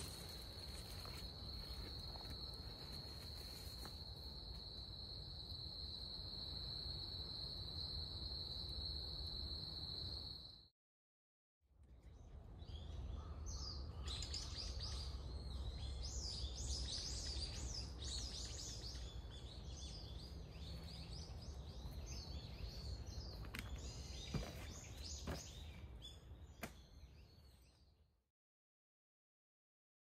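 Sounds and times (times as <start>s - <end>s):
birds chirping and singing: 12.6s - 27.8s.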